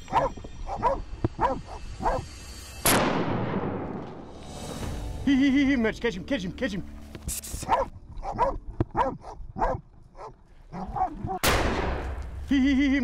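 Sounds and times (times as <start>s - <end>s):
dogs barking: 0.1s - 2.3s, 7.6s - 11.4s
rifle shot: 2.8s - 4.0s, 11.4s - 12.4s.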